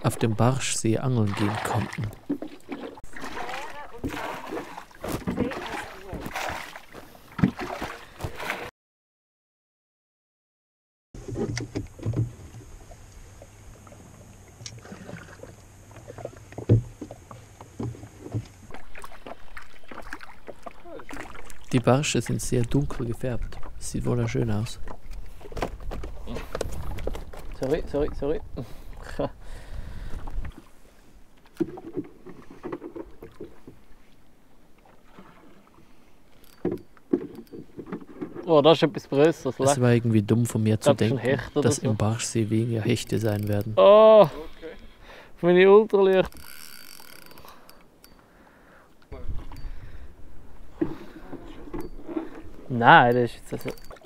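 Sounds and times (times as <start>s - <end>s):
water lapping against hull: 0.0s - 8.7s, 11.2s - 45.4s, 46.1s - 54.0s
knocks and clunks in a rowboat: 1.1s - 8.7s, 11.2s - 29.2s, 31.4s - 34.1s, 36.3s - 41.9s, 49.1s - 54.0s.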